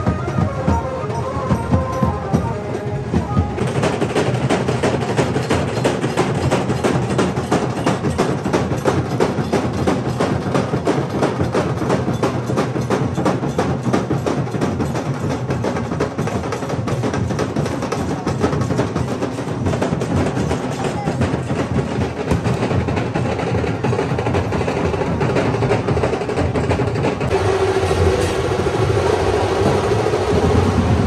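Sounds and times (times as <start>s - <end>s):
fast continuous drumming: 0.0s - 31.0s.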